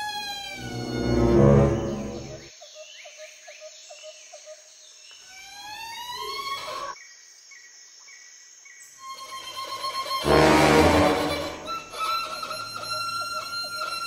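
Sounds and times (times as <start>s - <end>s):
held high tones: 0.5s - 2.5s, 10.2s - 11.9s
rising gliding tones: 0.5s - 2.5s, 10.2s - 11.7s.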